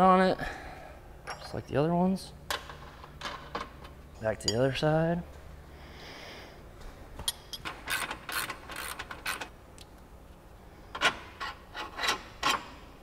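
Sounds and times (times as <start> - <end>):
ratchet wrench clicking: 7.9 - 9.5.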